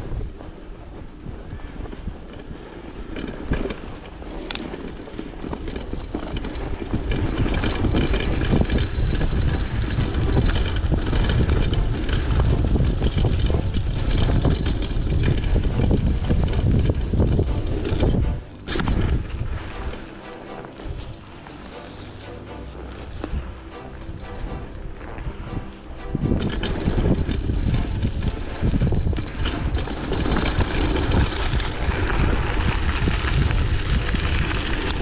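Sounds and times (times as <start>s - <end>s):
bicycle clicks and rattles: 0.0s - 35.0s
wind rumbling on microphone: 0.0s - 35.0s.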